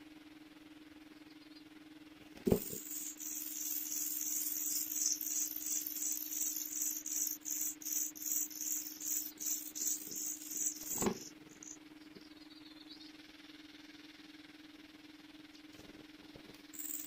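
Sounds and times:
faint steady hum: 0.0s - 17.0s
nestlings squeaking calls: 2.5s - 11.8s, 16.8s - 17.0s.

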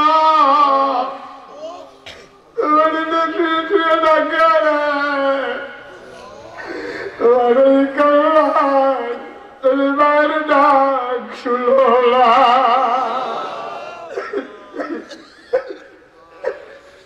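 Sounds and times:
sobbing catches of breath: 6.1s - 7.2s.

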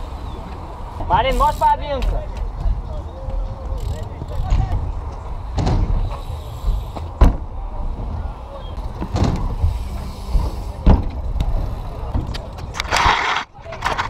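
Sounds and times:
bike tyres rolling on concrete: 0.0s - 14.0s
sharp knocks of bike landing: 4.4s - 8.1s, 8.9s - 12.5s.

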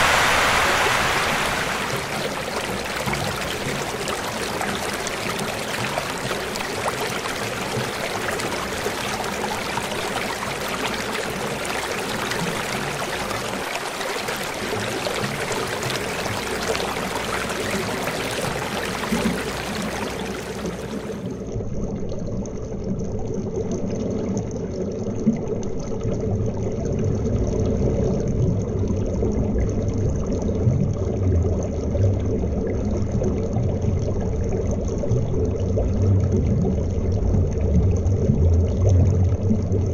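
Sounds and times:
river rushing over gravel: 0.0s - 6.2s
underwater flow rumble: 0.0s - 39.9s.

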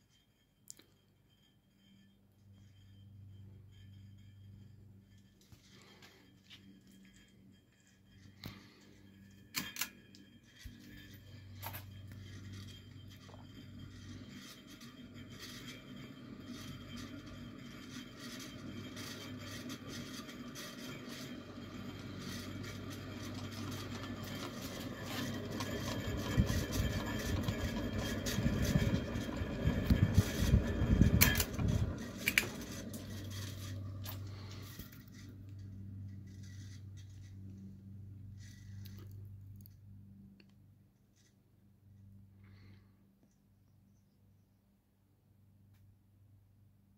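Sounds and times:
ceiling fan motor hum: 0.1s - 42.8s
fan rattle: 1.8s - 39.0s
uneven rumbling: 21.4s - 39.3s
fan clicks: 29.8s - 33.1s.

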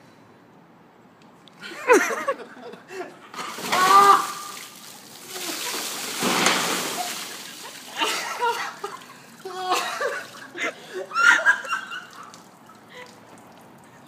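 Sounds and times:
water pouring and splashing: 3.3s - 11.0s, 11.6s - 14.0s.

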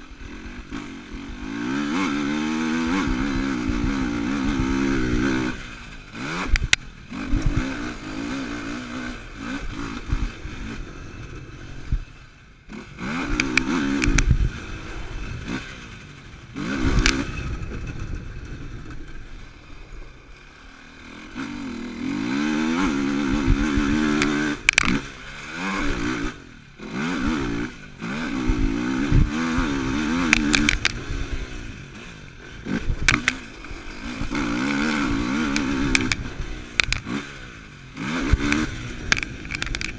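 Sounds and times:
quad engine revving: 0.0s - 39.9s
sharp knocks and clatter: 38.4s - 39.9s.

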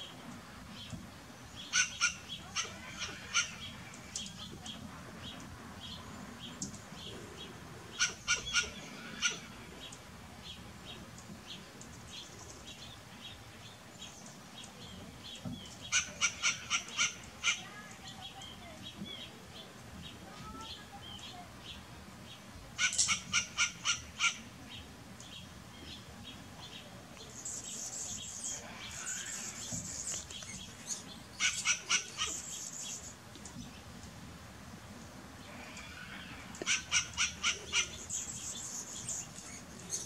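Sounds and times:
squirrel barking: 1.6s - 4.5s, 7.9s - 9.6s, 15.9s - 18.2s, 22.8s - 24.6s, 30.5s - 33.0s, 35.8s - 38.4s.

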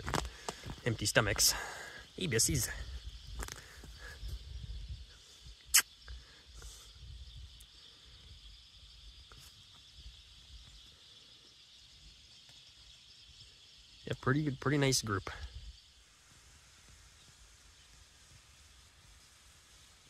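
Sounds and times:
faint high hiss: 12.6s - 20.0s.

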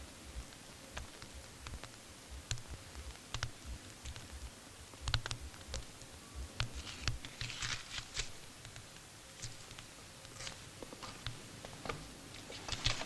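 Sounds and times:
clothing rustling: 6.7s - 8.6s, 9.4s - 13.0s.

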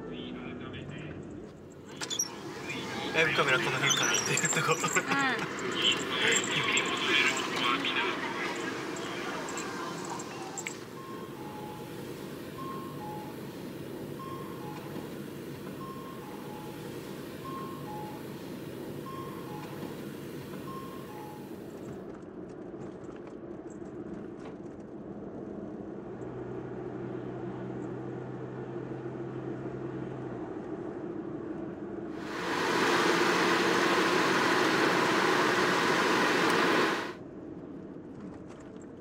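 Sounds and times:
van road and engine noise: 0.0s - 37.8s
two-note crossing signal chime: 6.0s - 13.6s, 14.2s - 18.4s, 19.0s - 20.0s, 20.6s - 21.6s
low hum: 32.2s - 37.2s.

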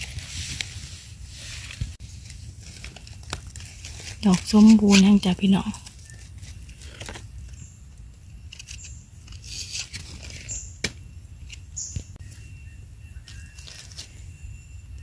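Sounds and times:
dry leaves crackling: 1.4s - 7.6s.

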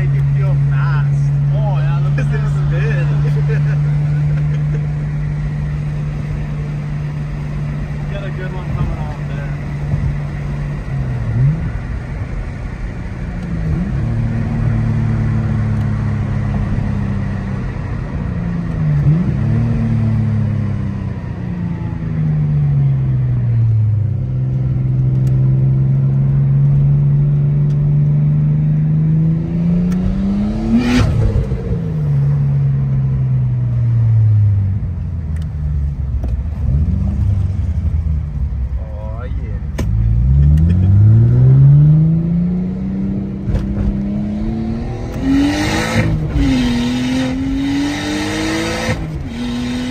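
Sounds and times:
car engine revving: 0.0s - 49.9s.

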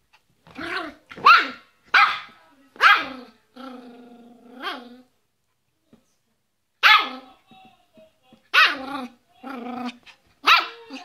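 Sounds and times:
small dog barking: 1.2s - 3.2s, 6.8s - 7.3s, 8.5s - 8.9s, 10.4s - 11.0s.

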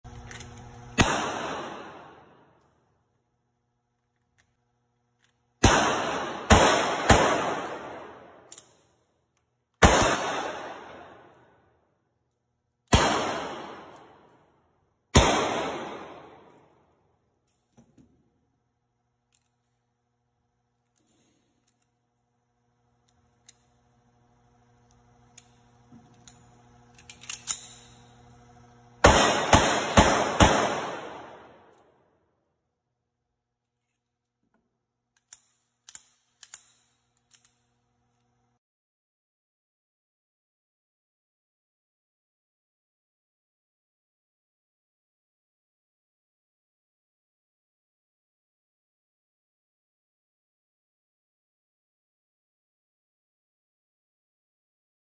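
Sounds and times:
pistol shots: 1.0s - 2.4s, 5.6s - 8.5s, 9.8s - 11.4s, 12.9s - 14.3s, 15.1s - 16.7s, 29.0s - 31.8s.

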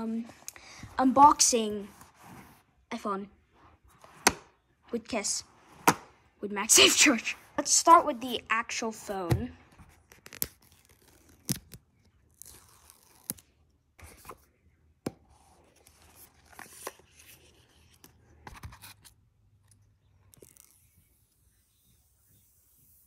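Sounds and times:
paper tearing: 10.0s - 13.5s.

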